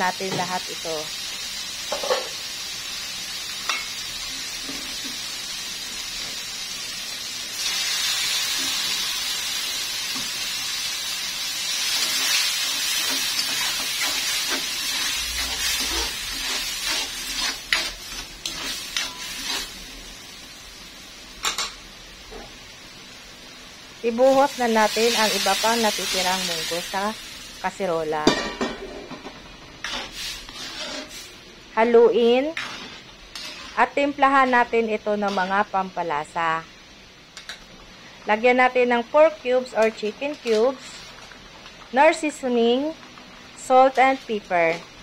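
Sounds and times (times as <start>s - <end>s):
food sizzling in oil: 0.0s - 45.0s
metal spatula scraping pan: 11.9s - 19.8s, 29.8s - 31.3s, 32.2s - 35.6s.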